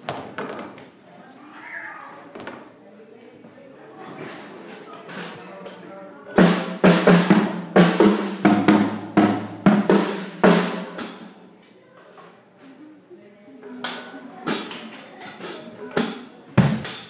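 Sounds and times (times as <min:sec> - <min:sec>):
drum kit fill: 0:06.3 - 0:11.5, 0:13.6 - 0:14.8, 0:15.4 - 0:17.0.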